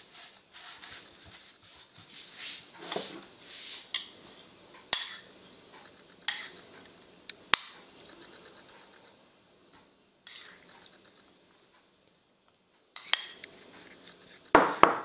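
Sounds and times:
hands brushing over dough: 0.0 - 3.9.

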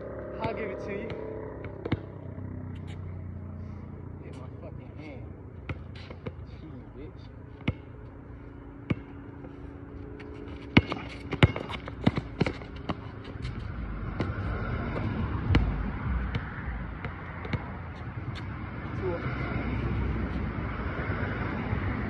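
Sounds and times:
low rumble: 0.0 - 22.0
basketball bouncing on asphalt: 0.2 - 3.2, 5.5 - 19.0.

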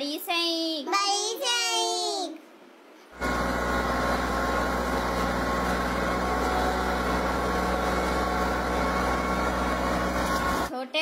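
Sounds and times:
cultivator engine running: 3.2 - 10.7.

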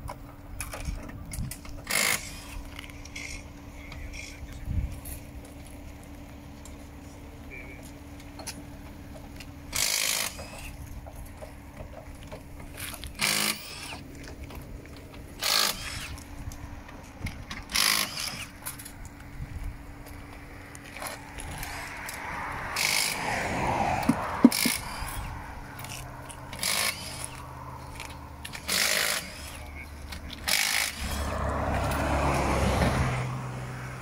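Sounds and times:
impact wrench bursts: 1.6 - 3.4, 9.7 - 10.8, 12.8 - 14.0, 15.4 - 16.3, 17.5 - 18.9, 20.9 - 23.3, 24.0 - 32.0.

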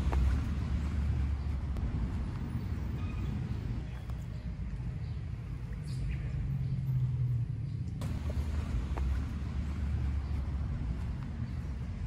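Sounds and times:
low steady rumble: 7.3 - 12.0.

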